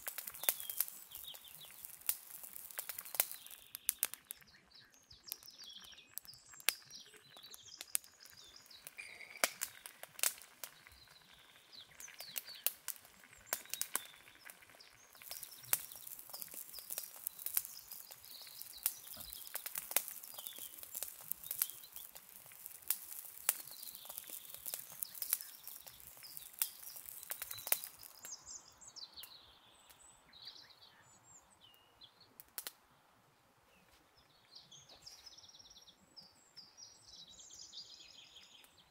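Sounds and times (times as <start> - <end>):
boiling and steam hissing: 0.0 - 28.4
wood fire crackling and popping: 0.0 - 29.3, 32.4 - 32.8
birds chirping: 0.0 - 33.0, 33.7 - 38.9.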